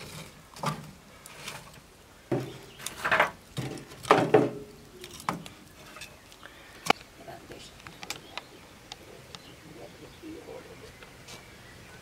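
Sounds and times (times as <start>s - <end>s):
firewood knocking into stove: 2.3s - 4.7s.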